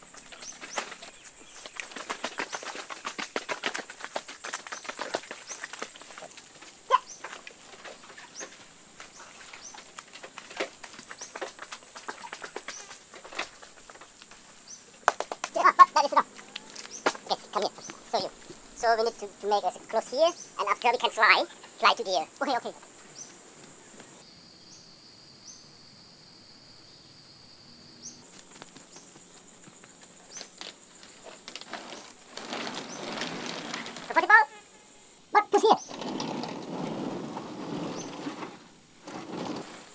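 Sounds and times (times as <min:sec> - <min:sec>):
bamboo mat rustling and scraping: 0:00.0 - 0:18.9, 0:28.3 - 0:34.5, 0:35.6 - 0:39.9
insects droning: 0:00.0 - 0:39.9
rustling: 0:28.3 - 0:34.3, 0:35.8 - 0:39.9.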